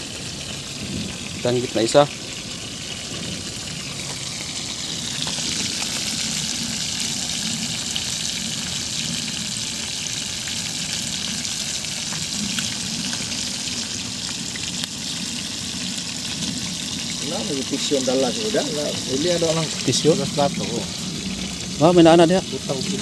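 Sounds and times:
fish sizzling in oil: 0:00.0 - 0:23.0.

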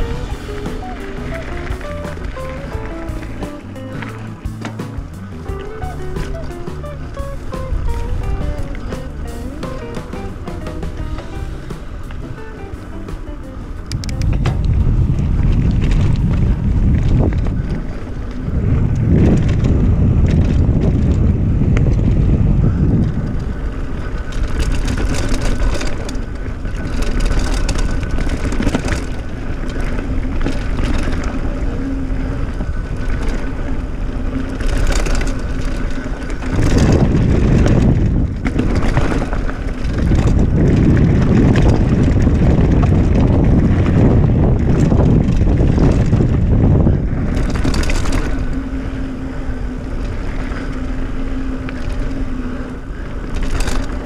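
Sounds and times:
bike clicks and rattles: 0:00.0 - 0:54.0
tyre noise on dirt: 0:00.0 - 0:54.0
wind buffeting microphone: 0:00.0 - 0:54.0.

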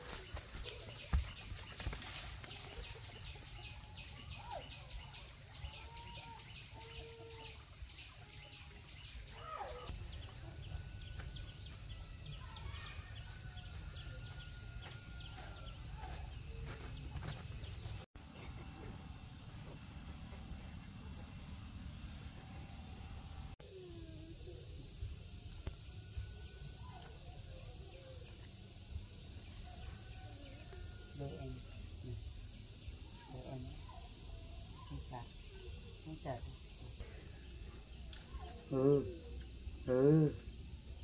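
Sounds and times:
insect drone: 0:18.5 - 0:41.0.

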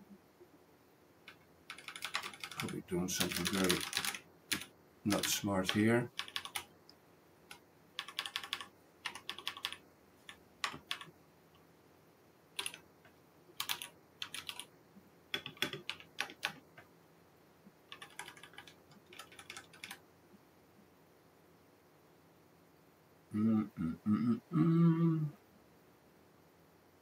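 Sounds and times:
typing on computer keyboard: 0:01.3 - 0:06.7, 0:07.5 - 0:11.1, 0:12.6 - 0:12.8, 0:13.6 - 0:14.7, 0:15.3 - 0:16.6, 0:17.9 - 0:20.0.

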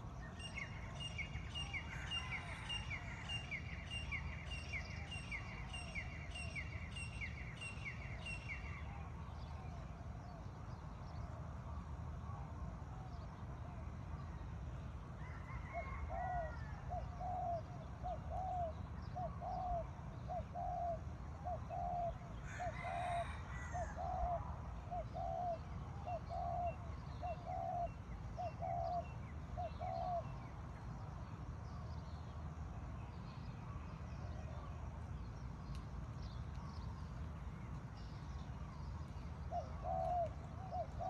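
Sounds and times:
small birds chirping faintly: 0:00.0 - 0:41.0
distant rooster crowing: 0:01.6 - 0:03.8, 0:15.2 - 0:17.0, 0:22.4 - 0:24.2.

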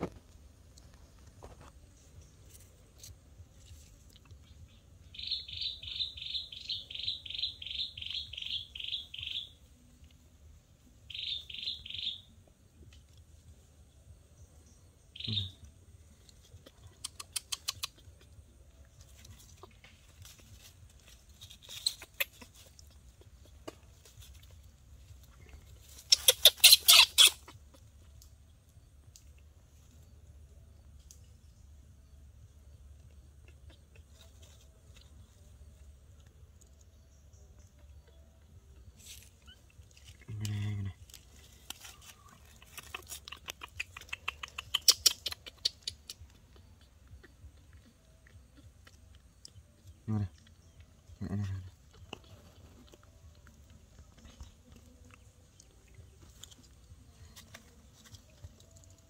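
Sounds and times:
monkey chewing and lip smacking: 0:16.2 - 0:28.2, 0:41.0 - 0:59.0
baby monkey squealing: 0:21.6 - 0:22.5, 0:26.0 - 0:27.8, 0:42.5 - 0:46.6.

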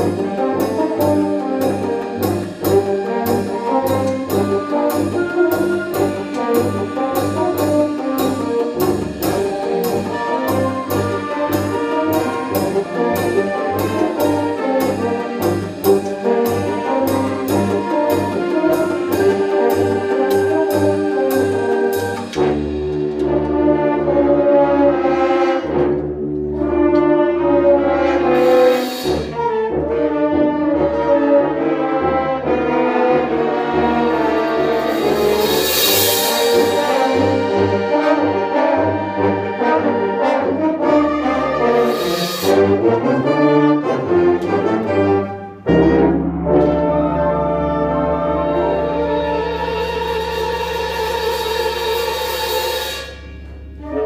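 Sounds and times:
concert band brass passage: 0:00.0 - 0:54.0
cymbal crashes: 0:34.8 - 0:37.7.

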